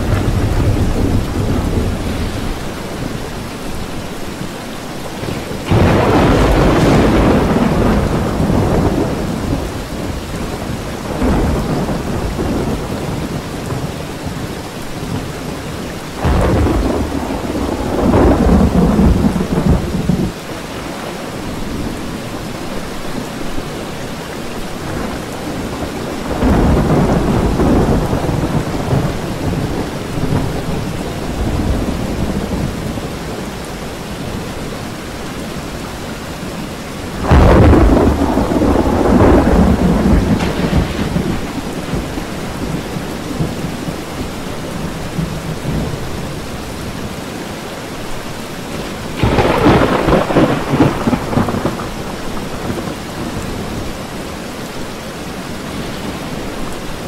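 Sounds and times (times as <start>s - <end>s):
thunder rumbling: 0.0s - 4.2s, 5.0s - 15.5s, 16.1s - 21.0s, 24.8s - 33.7s, 37.0s - 47.2s, 48.7s - 54.1s.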